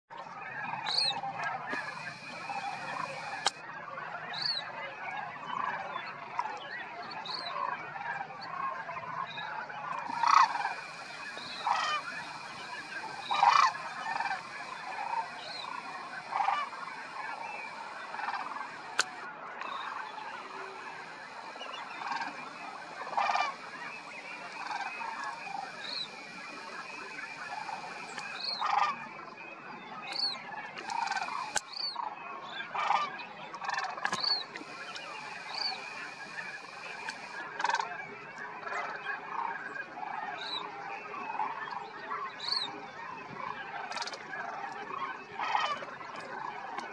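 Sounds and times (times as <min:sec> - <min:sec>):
cranes calling: 0:00.9 - 0:03.6, 0:10.0 - 0:29.0, 0:30.1 - 0:31.9, 0:33.8 - 0:37.4.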